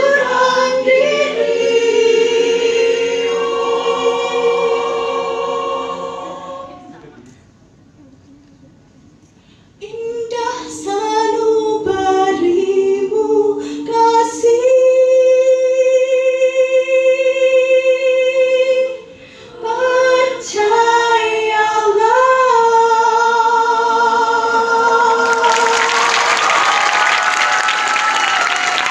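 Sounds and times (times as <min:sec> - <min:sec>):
choir singing a cappella: 0:00.0 - 0:07.2, 0:10.0 - 0:28.9
applause: 0:25.2 - 0:28.9.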